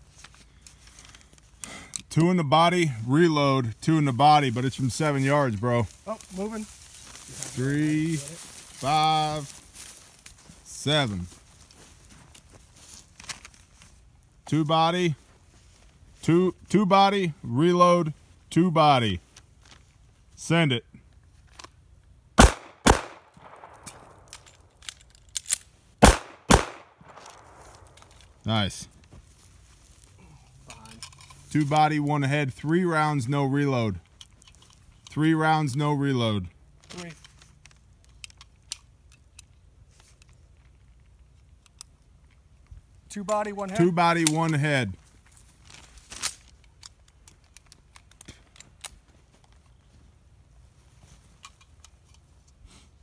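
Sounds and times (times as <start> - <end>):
rustling on dry grass and leaves: 0.0 - 1.6, 4.1 - 14.4, 15.2 - 16.2, 26.6 - 32.1, 44.9 - 53.0
pistol shots: 22.4 - 24.4, 26.0 - 28.0
magazine reload clicks: 22.4 - 28.3.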